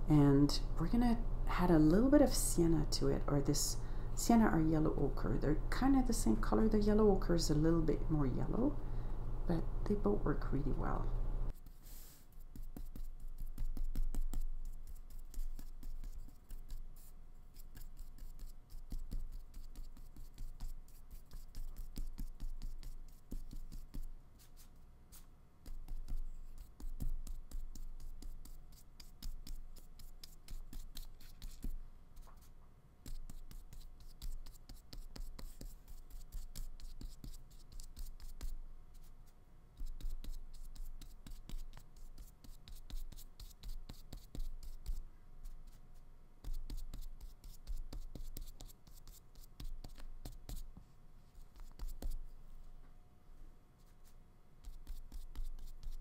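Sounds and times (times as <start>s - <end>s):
paintbrush bristles scratching: 11.5s - 32.5s, 53.8s - 56.0s.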